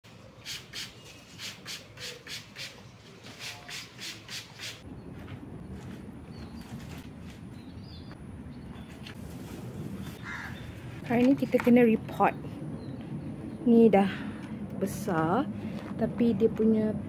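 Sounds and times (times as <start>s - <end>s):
spray bottle spritzing: 0.4s - 2.8s, 3.4s - 4.8s
low outdoor rumble: 4.8s - 17.0s.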